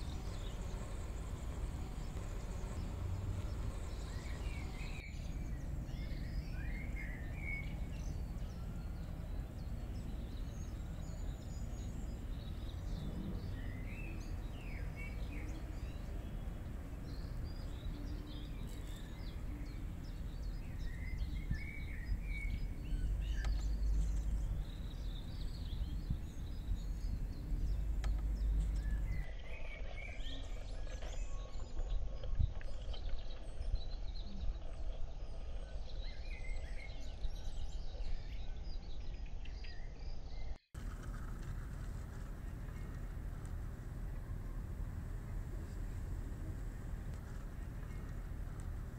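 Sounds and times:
steady low rumble: 0:00.0 - 0:29.3, 0:40.8 - 0:48.9
small birds chirping: 0:00.0 - 0:48.9.

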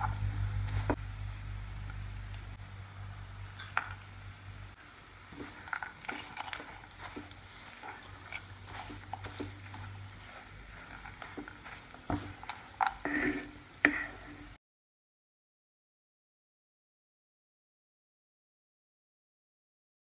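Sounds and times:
wooden spatula scraping a pan: 0:05.3 - 0:14.6.

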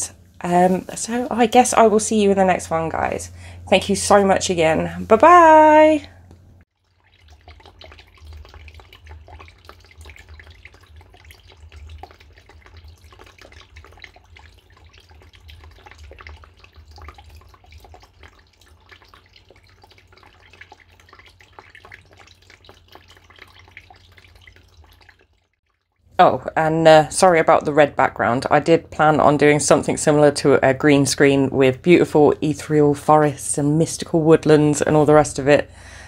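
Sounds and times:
low hum: 0:00.0 - 0:06.6
water trickling and splashing: 0:00.0 - 0:36.0.

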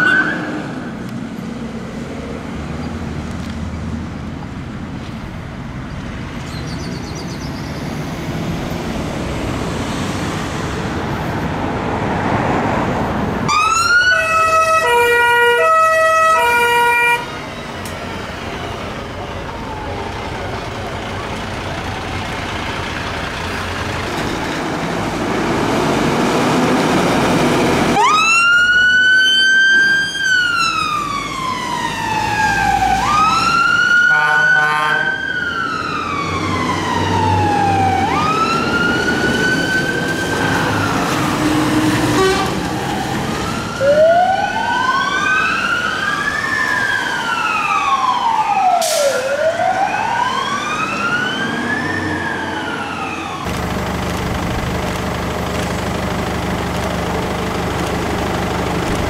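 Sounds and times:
siren wailing: 0:00.0 - 0:00.6, 0:13.5 - 0:17.4, 0:27.9 - 0:41.6, 0:43.0 - 0:53.5
second siren wailing: 0:00.0 - 0:00.7, 0:13.5 - 0:17.4, 0:27.9 - 0:53.5
truck engine running: 0:17.4 - 0:28.0, 0:53.5 - 0:59.0.

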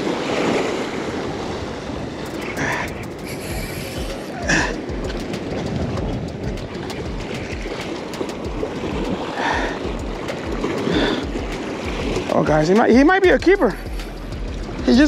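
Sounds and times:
surf washing against rocks: 0:00.0 - 0:15.0
wind rumbling on microphone: 0:00.0 - 0:15.0.

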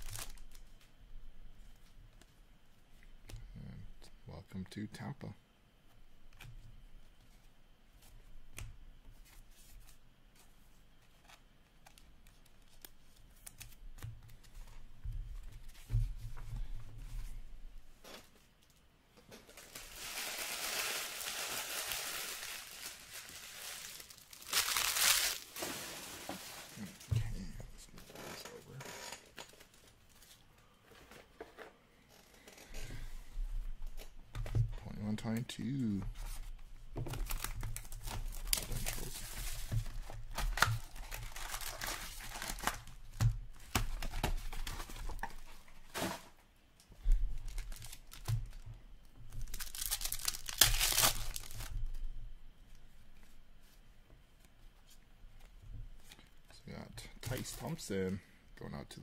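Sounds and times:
rustling of card packs: 0:00.0 - 0:00.9, 0:18.0 - 0:31.7, 0:35.0 - 0:46.4, 0:47.0 - 0:48.6, 0:49.3 - 0:51.8, 0:57.0 - 0:58.2.

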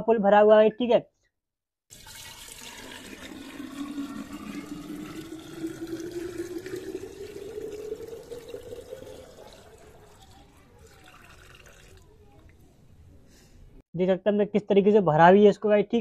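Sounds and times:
water pouring into glass jar: 0:01.9 - 0:12.5.

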